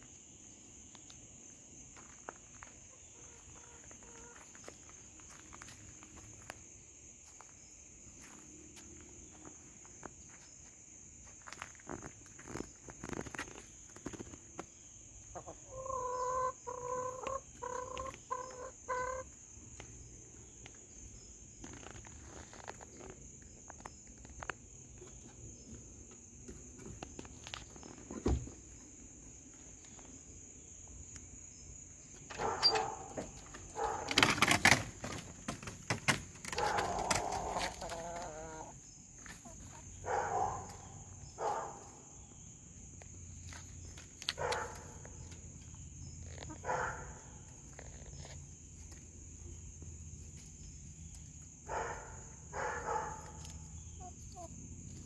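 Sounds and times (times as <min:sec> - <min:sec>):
hens clucking and squawking: 0:15.2 - 0:19.4, 0:36.4 - 0:40.8.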